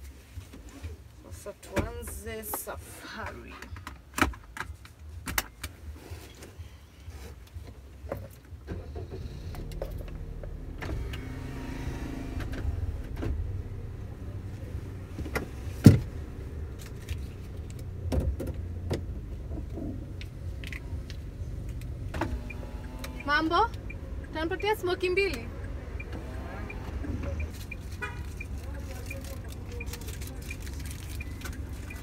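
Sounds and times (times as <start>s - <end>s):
engine and road rumble: 0.0s - 32.0s.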